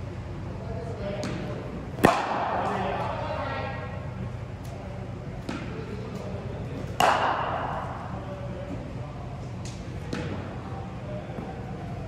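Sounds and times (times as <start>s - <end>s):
cricket bat striking ball: 2.0s - 2.6s, 7.0s - 7.9s.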